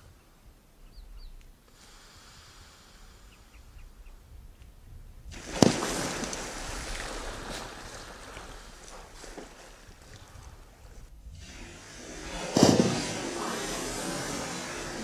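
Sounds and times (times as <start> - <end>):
loud splash: 5.3 - 10.7, 11.4 - 15.0
churning spraying water: 5.3 - 15.0.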